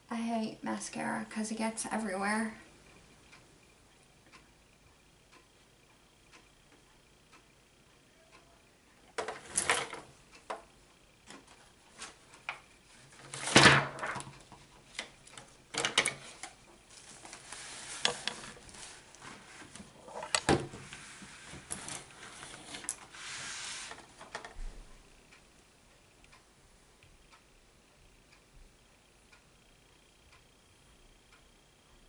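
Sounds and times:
rustling: 15.9 - 24.9.

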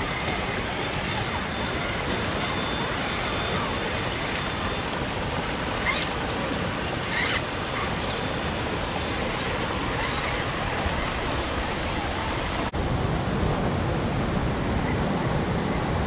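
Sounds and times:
creek water over rocks: 0.0 - 12.8.

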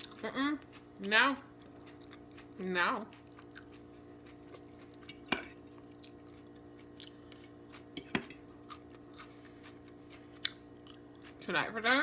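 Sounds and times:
cutlery clinking on plate: 8.0 - 8.4.

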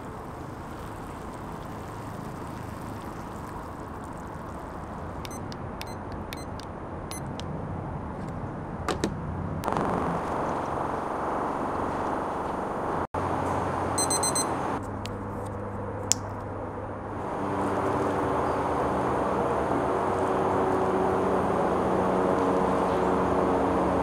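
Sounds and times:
hot water pouring from kettle: 0.0 - 5.3
sharp clicks: 5.2 - 7.5
kitchen timer beeps: 5.3 - 7.4, 14.0 - 14.5.

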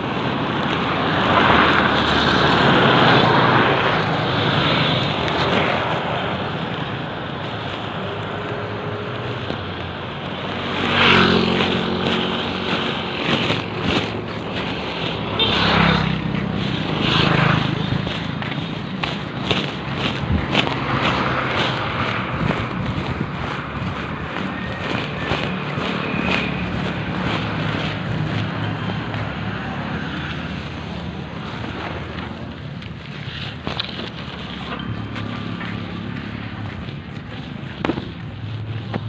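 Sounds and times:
motorcycle engines passing: 0.0 - 39.0
wind noise on microphone: 0.0 - 39.0.

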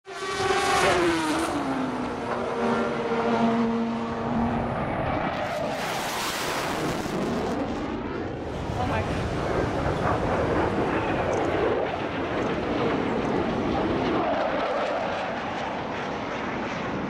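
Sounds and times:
race car engine passing: 0.1 - 6.8.

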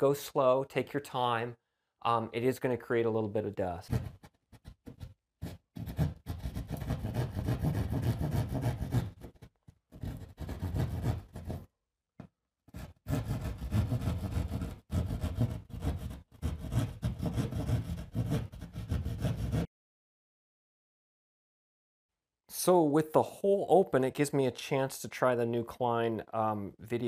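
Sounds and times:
hand saw cutting drywall: 3.9 - 11.7, 12.7 - 19.7.

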